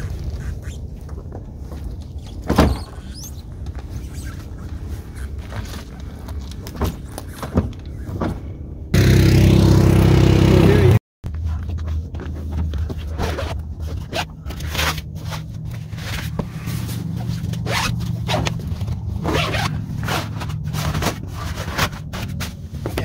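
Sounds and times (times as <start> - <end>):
canvas rustling: 0.0 - 8.3, 11.3 - 23.0
low hum: 0.0 - 22.7
zippers being pulled: 2.2 - 8.1, 15.9 - 18.6, 19.2 - 22.4.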